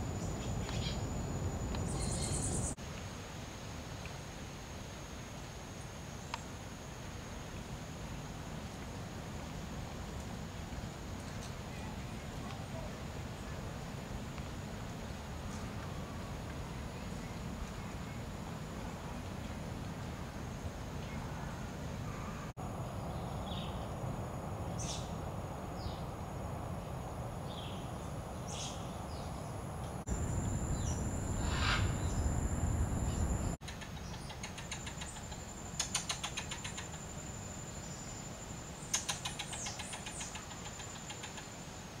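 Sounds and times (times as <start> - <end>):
steady high whine: 0.0 - 2.8, 22.6 - 33.6
birds chirping: 0.1 - 2.8, 30.1 - 33.6
steady low rumble: 22.6 - 33.6
bird rattling trills: 30.2 - 33.5.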